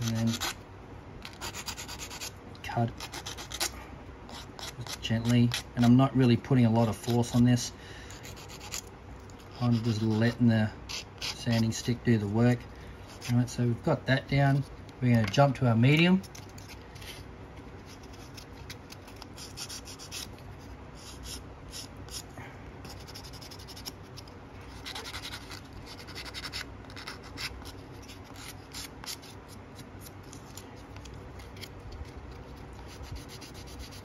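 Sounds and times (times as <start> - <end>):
sanding stick scratching plastic: 0.0 - 0.6, 1.2 - 3.7, 4.3 - 6.0, 8.2 - 12.0, 16.2 - 22.2, 22.8 - 34.0.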